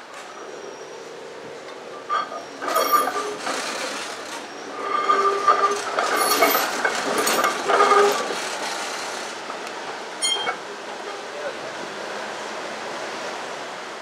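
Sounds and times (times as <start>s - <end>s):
streetcar wheels squealing on rails: 0.0s - 14.0s
wheels knocking over track joints: 2.2s - 11.2s.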